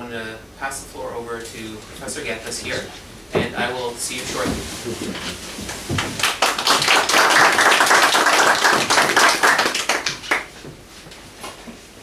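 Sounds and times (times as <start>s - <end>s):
audience applauding: 6.0s - 10.5s.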